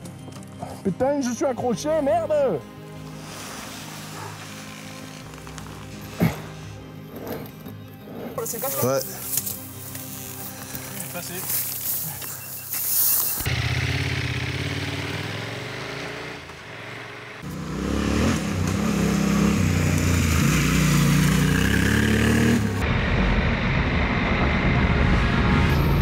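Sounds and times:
motorcycle pulling away: 0:13.3 - 0:22.8
motorcycle engine revving: 0:13.4 - 0:24.3.

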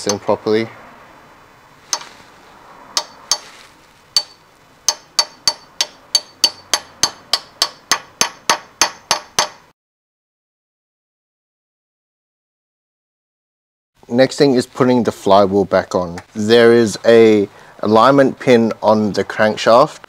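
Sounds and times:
hammer tapping on metal: 0:03.0 - 0:03.5, 0:04.2 - 0:09.7.

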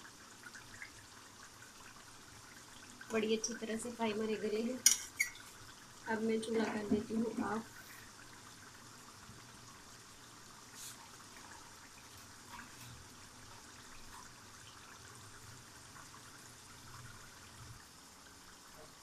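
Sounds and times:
faint steady hiss: 0:00.0 - 0:19.0.

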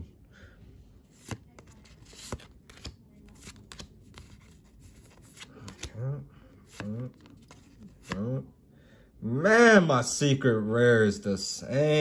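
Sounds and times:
trading cards flipped by hand: 0:01.1 - 0:06.0, 0:06.7 - 0:08.2.

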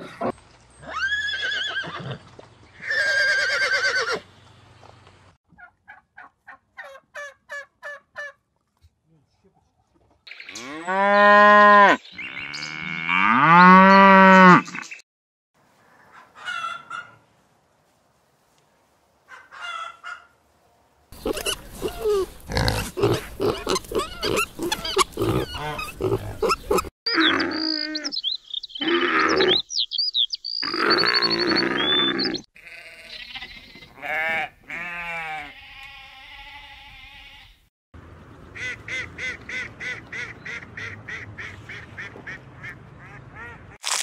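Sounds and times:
cow mooing: 0:10.5 - 0:14.8
pigs grunting: 0:21.2 - 0:27.7
pigs squealing: 0:21.2 - 0:28.1, 0:28.8 - 0:29.6, 0:30.6 - 0:33.0
sheep bleating: 0:32.6 - 0:33.2, 0:34.0 - 0:37.6.

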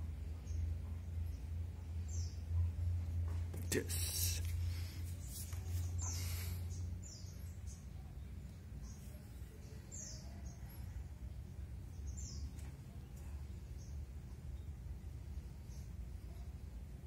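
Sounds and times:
low steady hum: 0:00.0 - 0:17.0
small birds chirping: 0:00.0 - 0:17.0.

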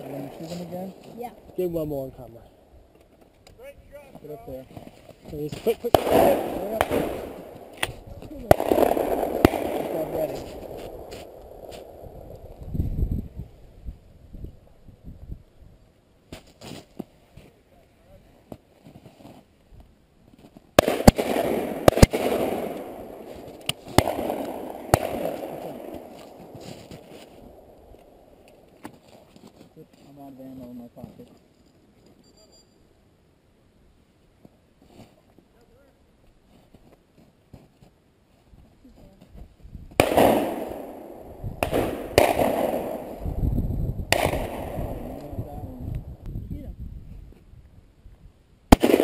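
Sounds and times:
shotgun shots: 0:05.8 - 0:11.3, 0:20.8 - 0:27.3, 0:40.0 - 0:43.3, 0:44.1 - 0:45.4, 0:48.7 - 0:49.0.

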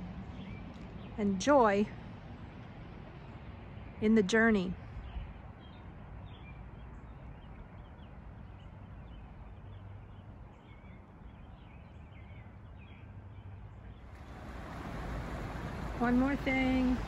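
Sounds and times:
songbirds chirping: 0:00.0 - 0:17.0
low background rumble: 0:13.3 - 0:17.0.

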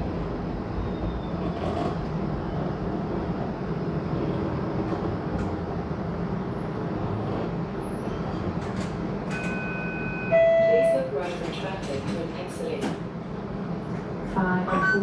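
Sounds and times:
streetcar rumbling on track: 0:00.0 - 0:15.0
two-note electronic tone: 0:14.7 - 0:15.0.

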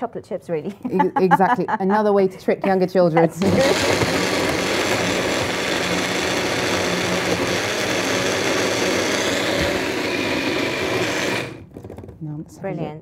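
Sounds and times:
blender motor running: 0:03.2 - 0:12.0.

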